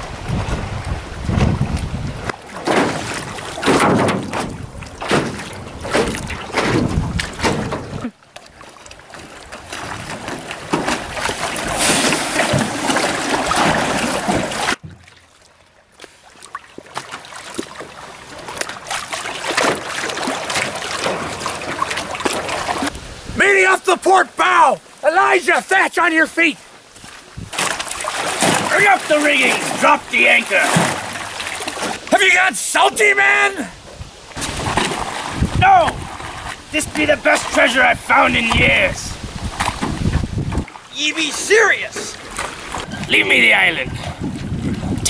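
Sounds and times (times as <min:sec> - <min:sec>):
wind buffeting microphone: 0:00.0 - 0:02.3, 0:04.2 - 0:08.1, 0:22.8 - 0:23.4, 0:27.3 - 0:27.7, 0:33.7 - 0:40.8, 0:42.2 - 0:45.0
lake water splashing: 0:00.0 - 0:45.0.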